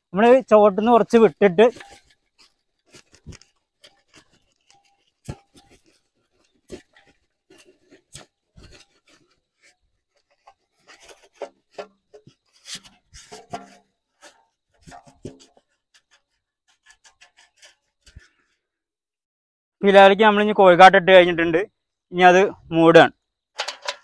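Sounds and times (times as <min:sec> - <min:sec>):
manure scraping and rustling: 0:00.2 - 0:18.3.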